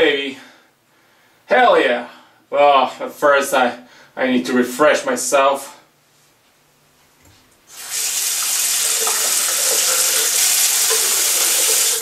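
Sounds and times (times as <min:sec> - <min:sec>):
tap water running into sink: 0:07.7 - 0:12.0.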